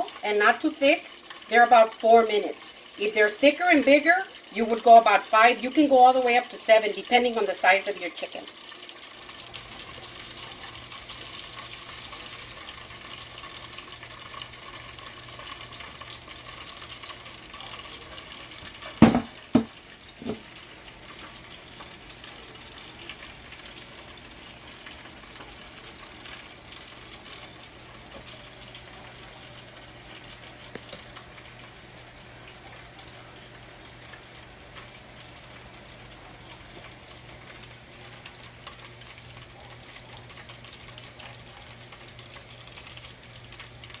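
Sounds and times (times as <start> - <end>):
oil sizzling in a deep fryer: 0.0 - 44.0
sharp knocks: 19.0 - 20.4.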